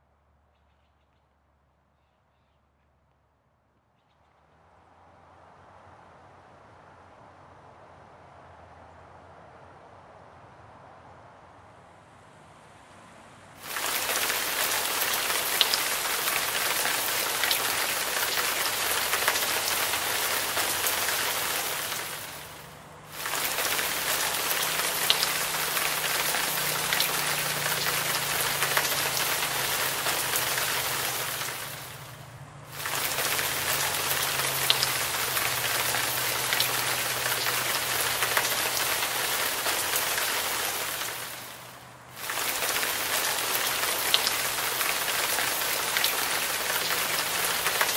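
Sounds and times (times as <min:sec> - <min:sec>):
splashing waterfall: 0:13.6 - 0:47.9.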